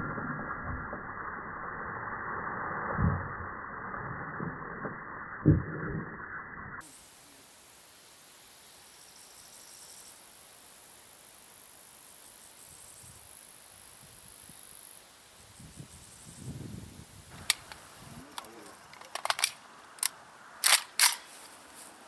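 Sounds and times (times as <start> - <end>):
metallic clicks of rifle handling: 17.4 - 21.4.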